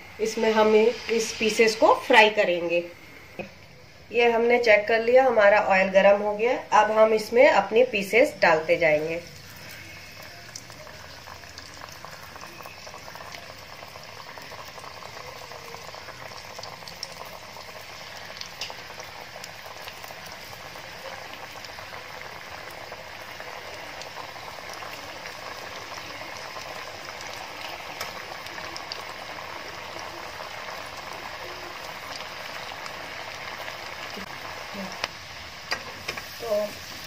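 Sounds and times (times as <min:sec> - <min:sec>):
food deep-frying in oil: 0:00.0 - 0:37.0
oil popping: 0:09.4 - 0:37.0.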